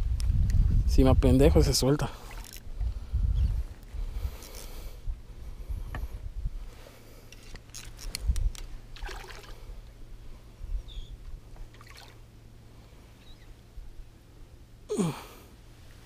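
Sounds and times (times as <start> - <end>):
wind on microphone: 0.0 - 1.8, 2.6 - 6.7
water splashing and trickling: 8.9 - 9.9, 11.6 - 12.3.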